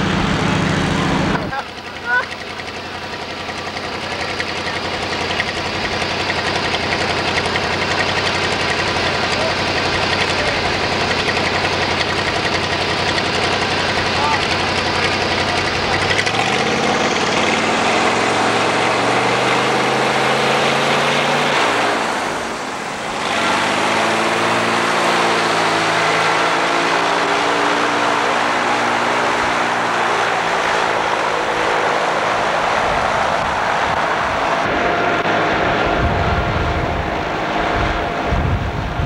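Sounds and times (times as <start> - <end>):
car engine revving: 0.0 - 39.0.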